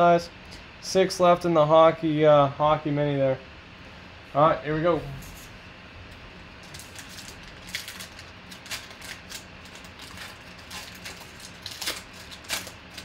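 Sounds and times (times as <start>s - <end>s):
foil wrapper crinkling: 6.6s - 13.0s.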